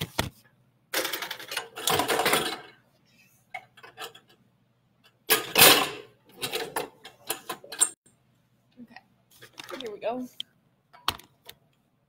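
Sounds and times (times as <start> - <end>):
knocks and clatter of handled objects: 0.0 - 2.8, 5.0 - 8.0, 9.3 - 10.0.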